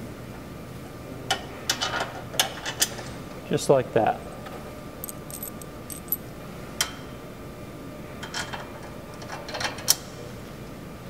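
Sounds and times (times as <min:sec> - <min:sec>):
metal bolts clicking: 0:05.0 - 0:06.2.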